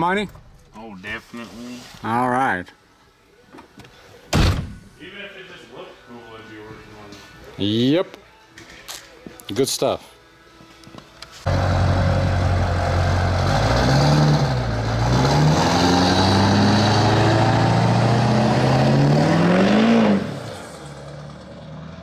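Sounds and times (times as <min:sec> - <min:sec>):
diesel engine accelerating hard: 0:11.5 - 0:22.0.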